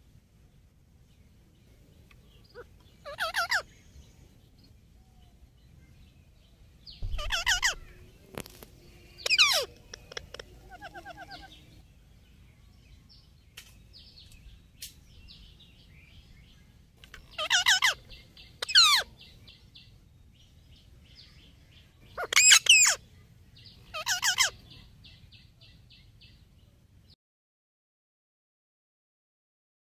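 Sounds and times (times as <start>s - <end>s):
parakeets calling: 2.4s - 3.8s, 7.0s - 8.2s, 9.1s - 11.8s, 17.1s - 19.3s, 22.0s - 23.0s, 23.7s - 24.8s.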